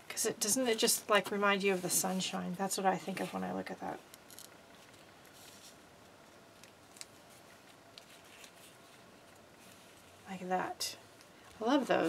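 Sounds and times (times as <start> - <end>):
paper rustling: 6.9 - 10.2.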